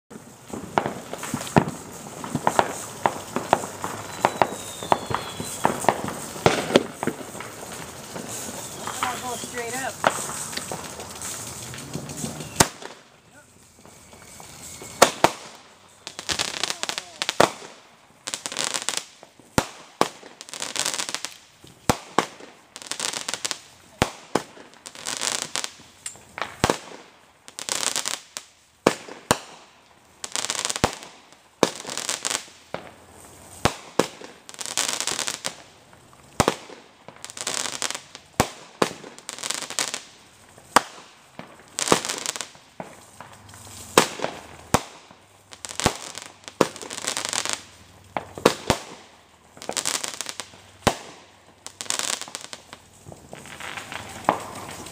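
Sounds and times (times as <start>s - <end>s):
fireworks bangs: 0.1s - 54.9s
fireworks crackling: 0.1s - 54.9s.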